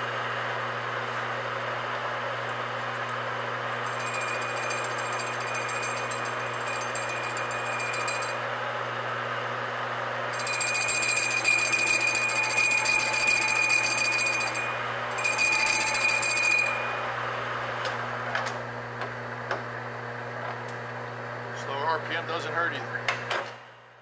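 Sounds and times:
lathe motor hum: 0.0s - 22.4s
lathe tool ringing tone: 3.6s - 8.6s, 10.3s - 17.6s.

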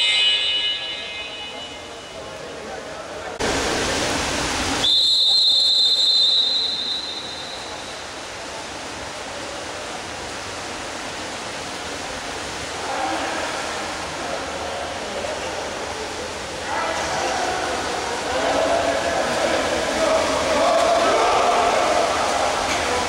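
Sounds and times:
referee's whistle blast: 0.0s - 2.2s, 4.8s - 8.0s
faint voices: 0.0s - 4.7s, 12.6s - 23.0s
water splashing: 0.0s - 23.0s.

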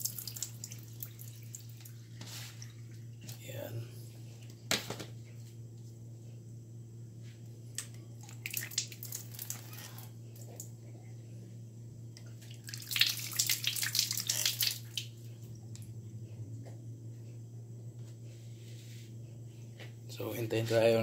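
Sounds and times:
water splashing and dripping: 0.0s - 2.7s, 8.2s - 9.7s, 12.4s - 15.2s.

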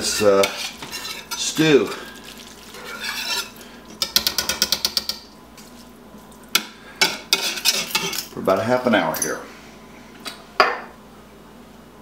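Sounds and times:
utensil scraping metal pot: 0.0s - 5.2s, 7.3s - 8.3s.

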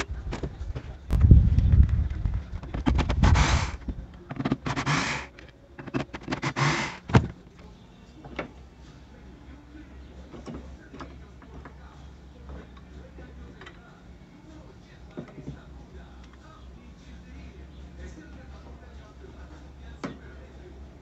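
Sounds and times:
steady low hum: 0.0s - 21.0s
plastic coupling rattling and scraping: 1.8s - 7.4s.

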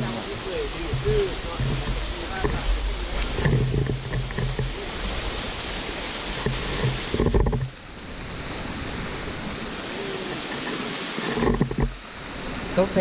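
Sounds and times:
low microphone rumbles: 0.0s - 9.6s
waterfall and stream rushing: 0.0s - 13.0s.

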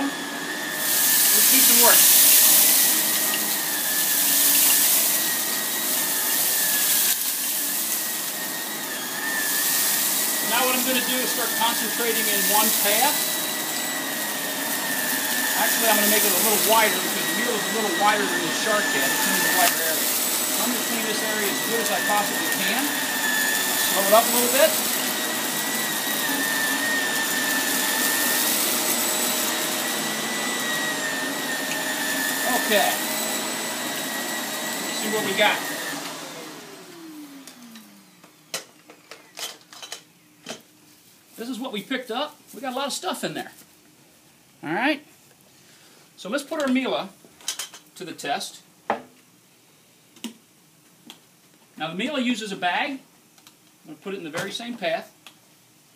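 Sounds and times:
vacuum cleaner on carpet: 0.0s - 38.7s.

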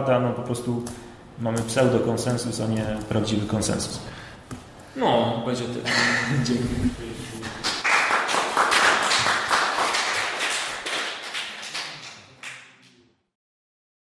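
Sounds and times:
audience applauding: 7.4s - 12.9s.

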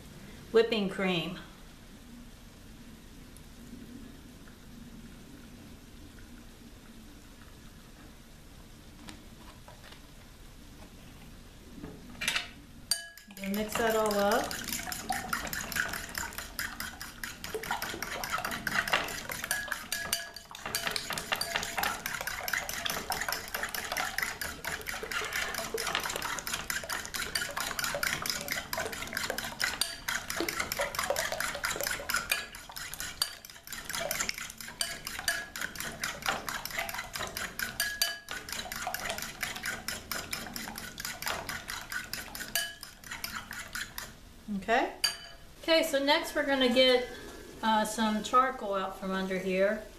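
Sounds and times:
fork beating eggs in glass bowl: 12.9s - 44.2s.

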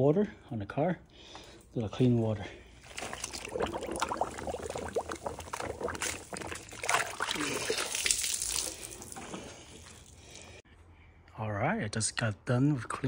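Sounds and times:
wash mitt sloshing in water: 2.8s - 10.2s
water pouring and dripping: 2.8s - 10.5s.

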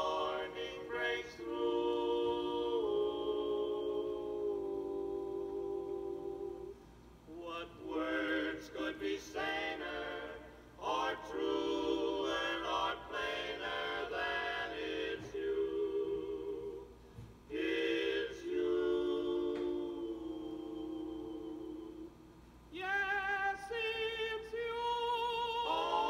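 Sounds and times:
barbershop quartet singing on record: 0.0s - 26.0s.

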